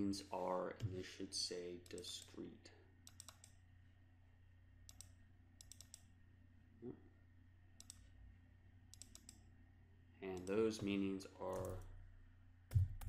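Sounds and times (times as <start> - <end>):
low electrical hum: 0.0 - 13.0
faint computer mouse clicks: 4.9 - 6.1, 7.8 - 8.0, 8.9 - 9.4.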